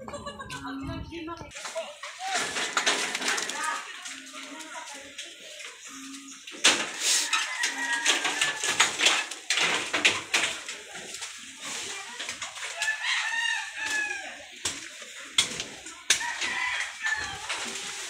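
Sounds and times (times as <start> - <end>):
footsteps on fallen leaves: 1.5 - 8.6, 10.5 - 18.0
rooster crowing: 7.0 - 9.2, 12.7 - 14.5, 16.1 - 17.7.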